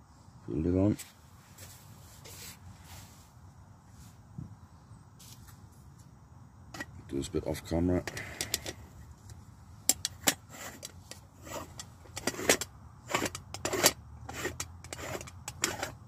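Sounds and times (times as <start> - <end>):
moka pot metallic clicks and knocks: 6.7 - 7.0, 8.0 - 15.9.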